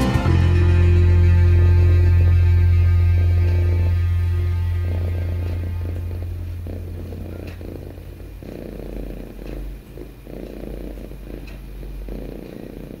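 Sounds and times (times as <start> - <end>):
cat purring: 0.0 - 13.0.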